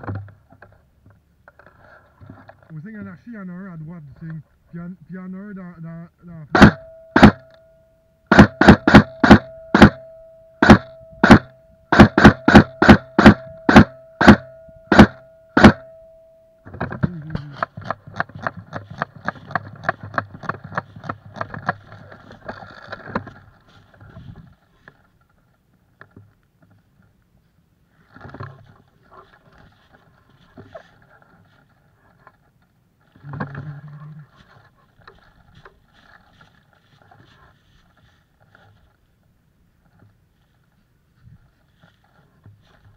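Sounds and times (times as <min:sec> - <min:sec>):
steady tone: 0:06.4 - 0:17.7
airsoft gun shots: 0:06.5 - 0:07.5, 0:08.3 - 0:10.0, 0:10.6 - 0:15.9.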